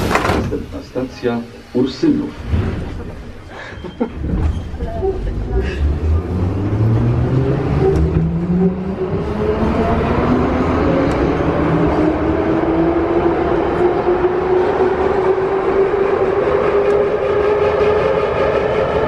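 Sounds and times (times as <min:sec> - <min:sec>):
train rumble in tunnel: 0:00.0 - 0:19.0
rising train motor whine: 0:05.1 - 0:19.0.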